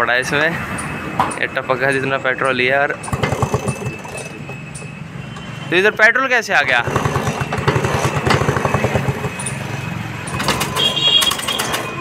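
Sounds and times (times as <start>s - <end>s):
scooter engine turning over: 3.0s - 4.6s, 6.7s - 12.0s.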